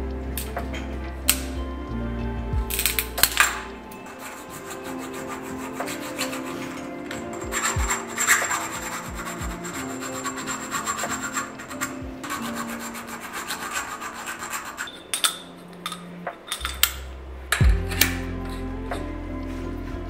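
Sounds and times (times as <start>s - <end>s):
deep bass note: 0.0s - 3.9s, 17.1s - 20.0s
background music: 0.0s - 20.0s
hand rubbing and scraping: 2.7s - 17.0s.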